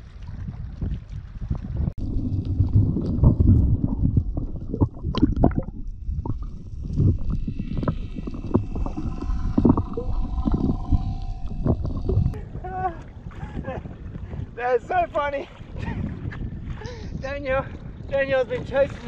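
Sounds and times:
underwater rumbling and gurgling: 0:00.0 - 0:14.6
underwater knocks and clicks: 0:00.8 - 0:12.4
faint steady tones: 0:05.7 - 0:13.1.

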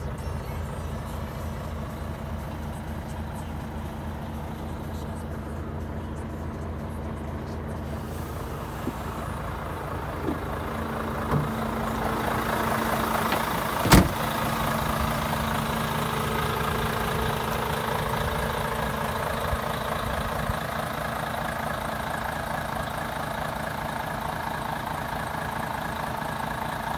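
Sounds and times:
diesel truck idling: 0:00.0 - 0:26.9
cab door thud: 0:10.2 - 0:10.6, 0:11.2 - 0:11.6, 0:13.3 - 0:14.3.

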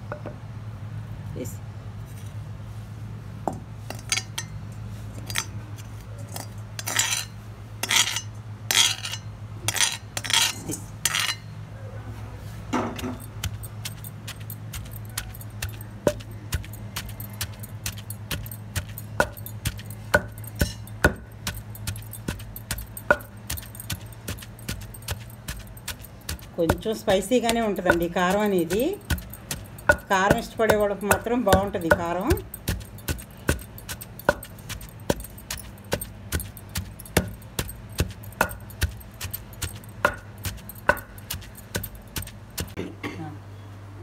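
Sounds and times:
pestle pounding in mortar: 0:12.9 - 0:42.8.

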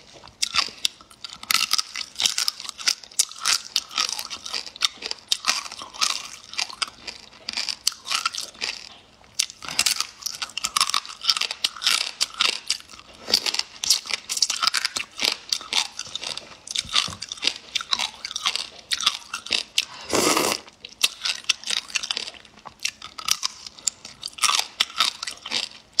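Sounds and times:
person chewing crunchy food: 0:00.0 - 0:26.0
mouth sound: 0:20.0 - 0:20.7.

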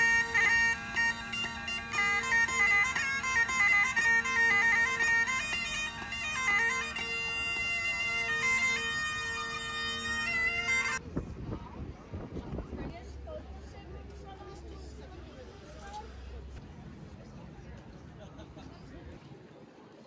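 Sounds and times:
bagpipe chanter melody: 0:00.0 - 0:11.0
bagpipe drone: 0:00.0 - 0:11.0.

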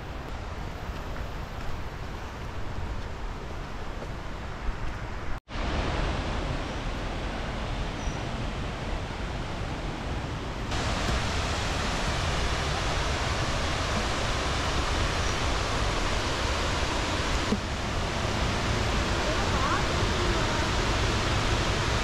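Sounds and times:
flowing river water: 0:05.5 - 0:22.0.

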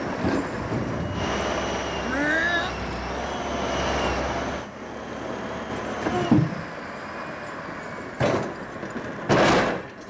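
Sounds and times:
wheel loader running: 0:00.0 - 0:10.0
creak and clunk of logs: 0:00.1 - 0:00.9, 0:08.2 - 0:10.0.

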